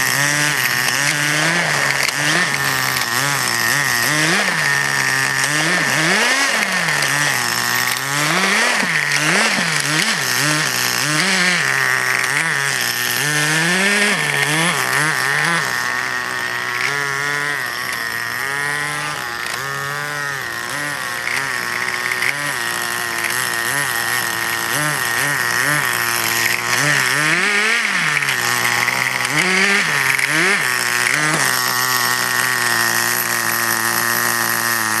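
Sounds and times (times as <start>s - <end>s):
small engine revving: 0.0s - 35.0s.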